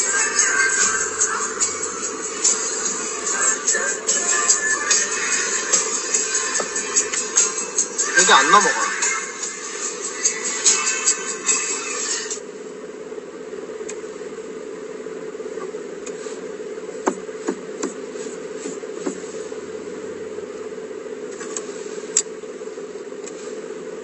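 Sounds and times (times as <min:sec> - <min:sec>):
car cabin hum: 0:00.0 - 0:07.5, 0:08.1 - 0:09.1, 0:12.4 - 0:24.0
music: 0:00.0 - 0:12.5.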